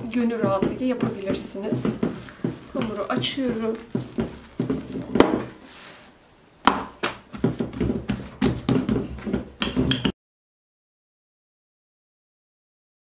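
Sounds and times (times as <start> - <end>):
rolling pin knocking on wooden table: 0.0 - 5.6, 6.6 - 10.1.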